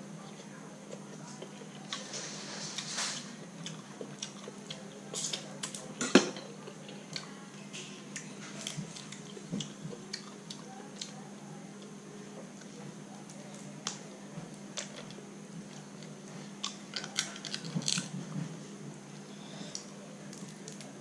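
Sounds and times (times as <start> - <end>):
steady low hum: 0.0 - 21.0
person chewing: 3.6 - 5.7.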